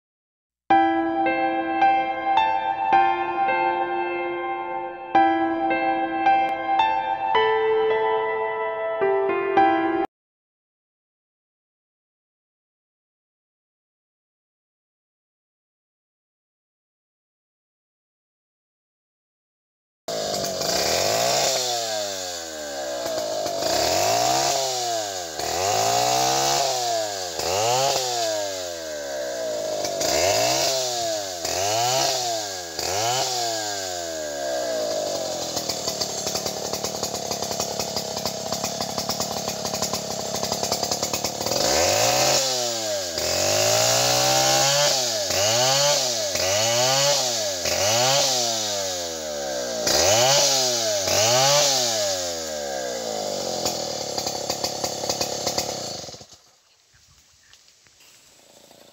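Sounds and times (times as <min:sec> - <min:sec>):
chainsaw cutting wood: 0:20.1 - 0:56.6, 0:57.7 - 0:58.9.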